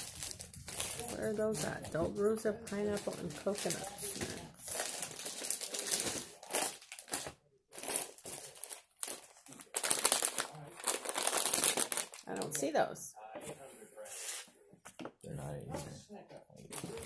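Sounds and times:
snack packets crinkling: 0:00.0 - 0:12.8, 0:16.7 - 0:17.0.

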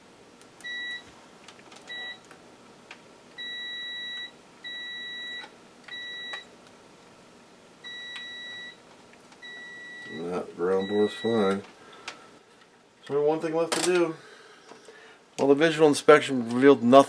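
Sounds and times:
multimeter continuity beeps: 0:00.6 - 0:01.1, 0:01.9 - 0:02.3, 0:03.4 - 0:06.5, 0:07.8 - 0:08.8, 0:09.4 - 0:11.6.

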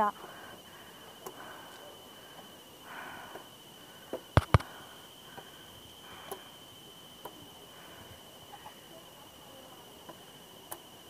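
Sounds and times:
sharp knocks: 0:04.4 - 0:04.6.

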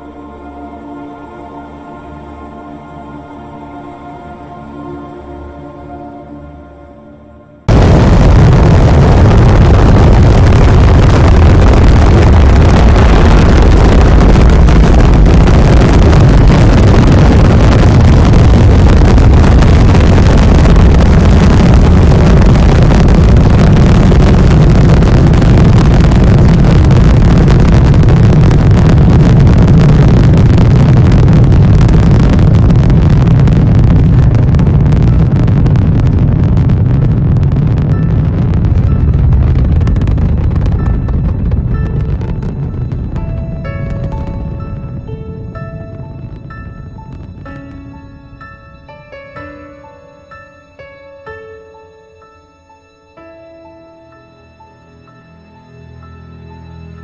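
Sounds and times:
rocket engines roaring: 0:07.7 - 0:48.7.

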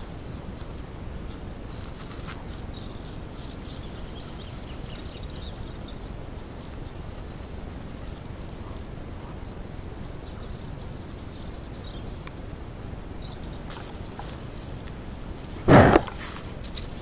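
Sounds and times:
faint microphone hiss: 0:00.0 - 0:17.0
animal rubbing against microphone: 0:13.7 - 0:17.0.

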